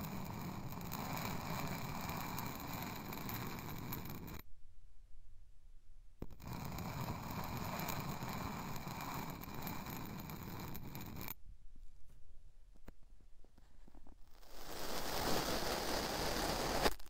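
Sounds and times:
sand scraping against metal tube: 14.4s - 17.0s.

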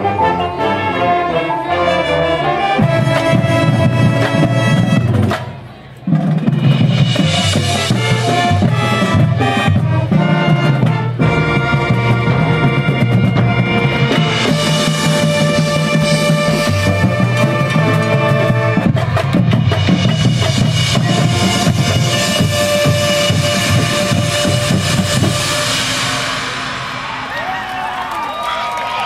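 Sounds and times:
marching band playing: 0.0s - 29.0s
cymbal crash: 23.2s - 28.4s.

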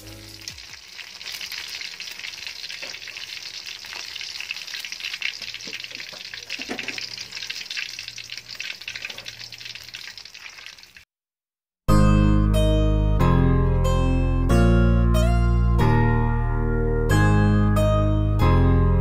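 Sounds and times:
deep-frying sizzle and pops: 0.0s - 11.1s.

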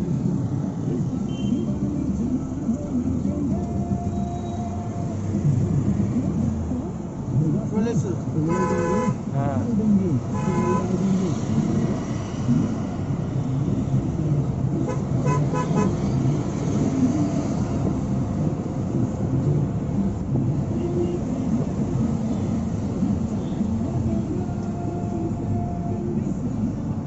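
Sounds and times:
engine and road rumble: 0.0s - 27.0s
car horn toots: 1.3s - 1.7s, 8.5s - 9.2s, 10.3s - 10.9s, 14.9s - 16.0s.

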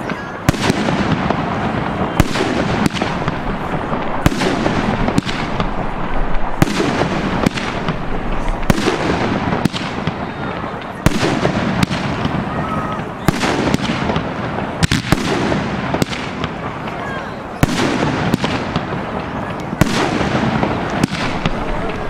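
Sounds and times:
firework shells booming: 0.0s - 22.0s
rush and crackle: 0.8s - 12.0s.

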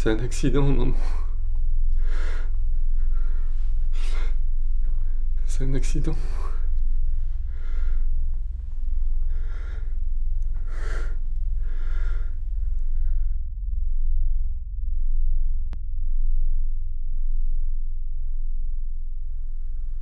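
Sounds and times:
low steady hum: 0.0s - 20.0s
person breathing heavily: 0.6s - 13.4s.

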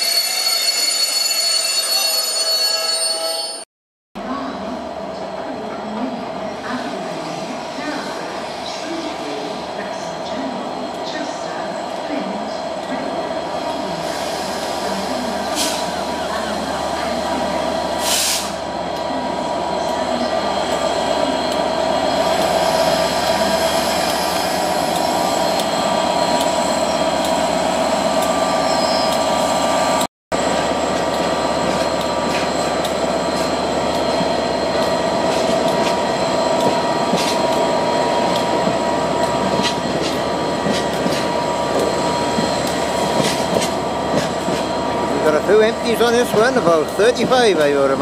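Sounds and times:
freight train rolling past: 4.4s - 48.0s
wheel squeal: 28.5s - 29.5s.

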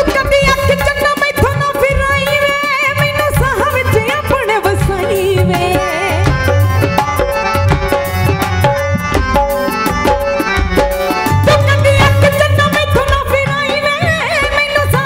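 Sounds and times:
hand drum quick rhythm: 0.0s - 15.0s
melody of held notes: 6.3s - 13.8s.

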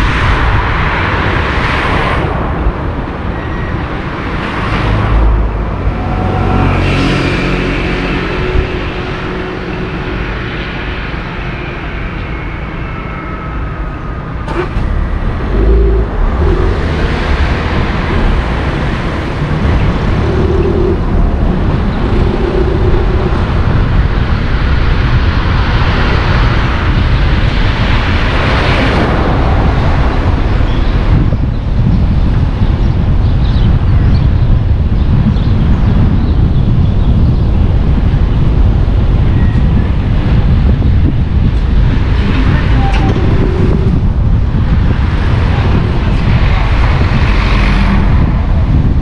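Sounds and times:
car engine and tyre road noise: 0.0s - 49.0s.

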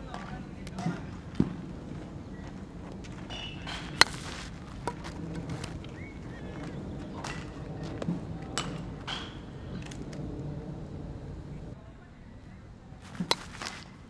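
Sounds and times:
bat striking baseball: 0.1s - 10.1s, 13.0s - 14.0s.

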